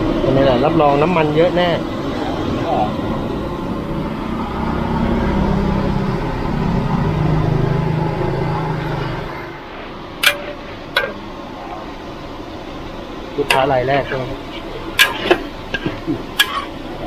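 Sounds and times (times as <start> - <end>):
vehicle engine passing: 1.3 - 15.4
sharp clack: 10.2 - 11.2, 15.0 - 16.7.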